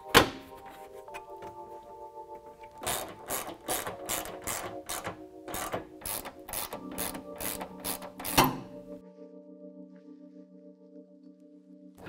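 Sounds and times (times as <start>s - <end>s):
background music: 0.0s - 12.0s
ratchet wrench clicking: 2.8s - 8.6s.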